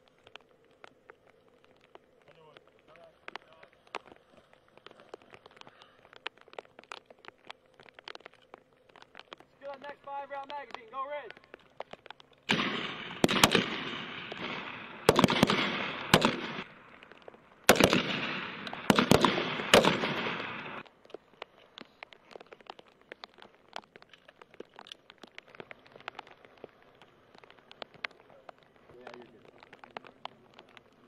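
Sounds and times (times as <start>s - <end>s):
faint small clicks: 0.0s - 12.5s
rifle shots with echo: 12.5s - 20.8s.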